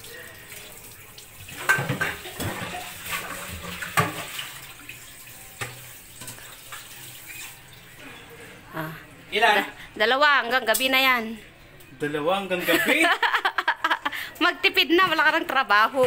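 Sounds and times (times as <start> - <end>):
tap water splashing in metal pot: 0.0 - 7.6
pot knocking against sink: 1.6 - 2.9, 3.6 - 4.4.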